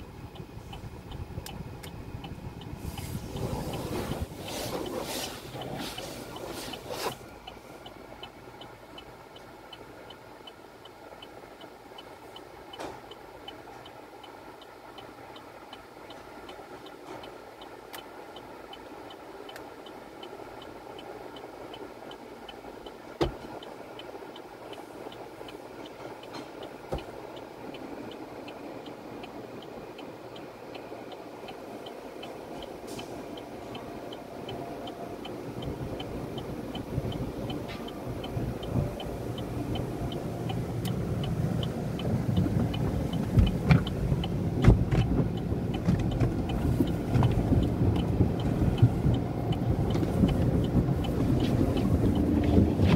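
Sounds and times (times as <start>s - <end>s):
car wash machinery: 0.0s - 10.1s, 11.5s - 52.9s
cloth brushes on windshield: 2.8s - 7.8s.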